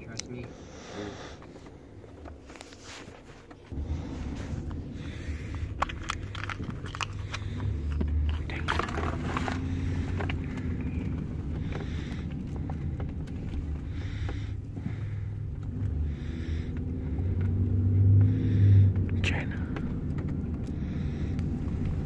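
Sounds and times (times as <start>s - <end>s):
car interior rumble: 0.0s - 22.0s
plastic capsule clicks and scrapes: 4.5s - 12.6s.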